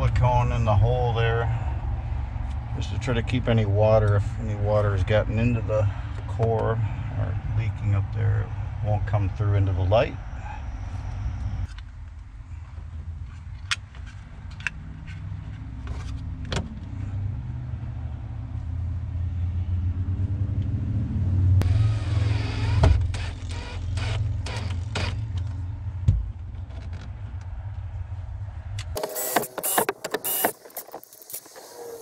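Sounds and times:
steady low rumble: 0:00.0 - 0:22.1
cordless drill whining: 0:21.6 - 0:25.2, 0:29.0 - 0:30.6
handling clicks and knocks: 0:28.8 - 0:31.3.

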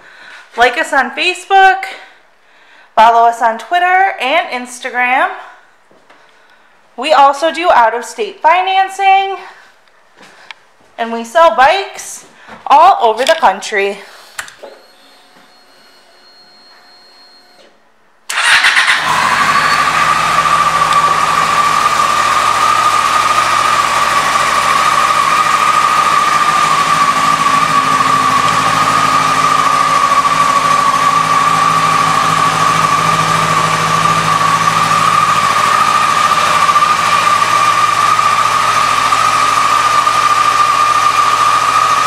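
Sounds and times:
motorcycle engine starting and idling: 0:18.3 - 0:42.0.

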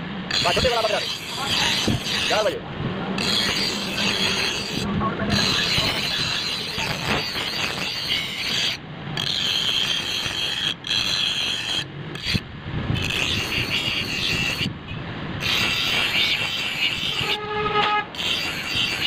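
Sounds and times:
bench grinder grinding steel: 0:00.3 - 0:02.6, 0:03.2 - 0:19.0.

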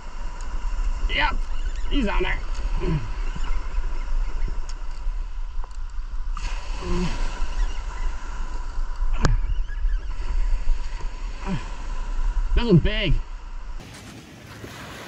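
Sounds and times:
wind buffeting microphone: 0:00.0 - 0:15.0
surf washing onto gravel beach: 0:13.8 - 0:15.0.

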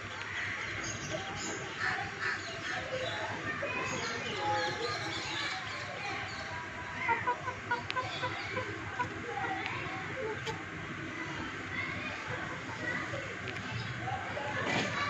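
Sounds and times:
chickens clucking: 0:00.9 - 0:11.0.

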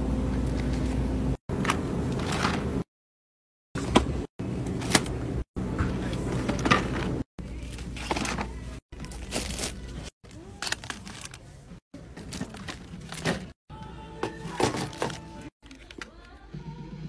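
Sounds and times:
groceries knocking in plastic cart: 0:14.2 - 0:15.4.

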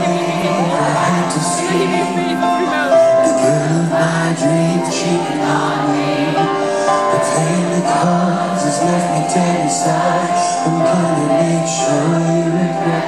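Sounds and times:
live band playing: 0:00.0 - 0:04.6
man singing into a microphone: 0:00.0 - 0:13.0
sustained keyboard chords: 0:00.0 - 0:13.0.

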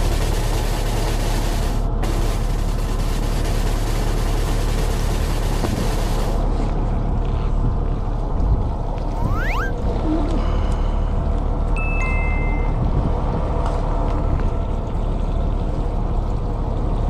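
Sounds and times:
boat engine drone: 0:00.0 - 0:17.0
wind: 0:00.0 - 0:17.0
rising swoop: 0:09.1 - 0:09.8
sea noise: 0:09.1 - 0:09.8.

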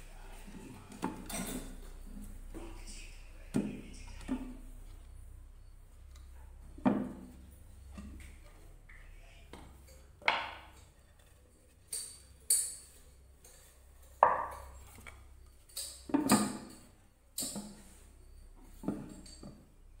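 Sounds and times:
wooden lid knocking on wooden pot: 0:10.2 - 0:10.7, 0:14.2 - 0:14.7.

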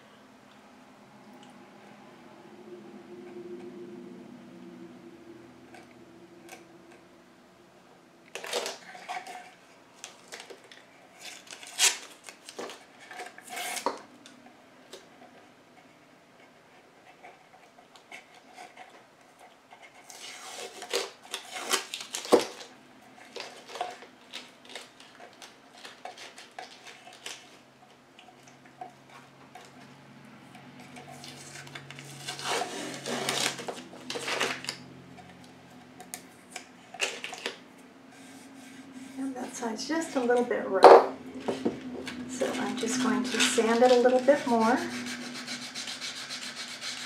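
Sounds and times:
tape ripping off: 0:08.3 - 0:09.4, 0:10.0 - 0:14.1, 0:20.1 - 0:22.7, 0:31.1 - 0:34.8.

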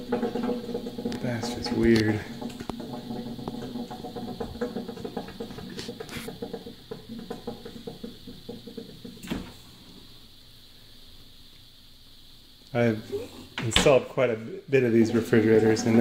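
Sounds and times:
refrigerator knocking patter: 0:00.0 - 0:09.6.

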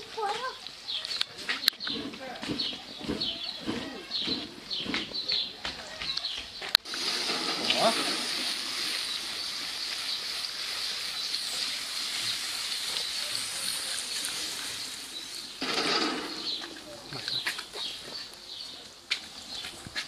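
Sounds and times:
food sizzling in a wok: 0:06.8 - 0:16.6
wok clattering: 0:06.9 - 0:09.1, 0:15.6 - 0:16.8.

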